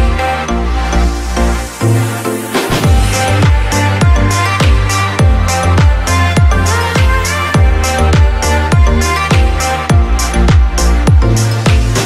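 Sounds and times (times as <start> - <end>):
sustained bass and chords: 0.0 - 12.0
hi-hats hissing: 0.9 - 12.0
deep kick drums: 2.6 - 12.0.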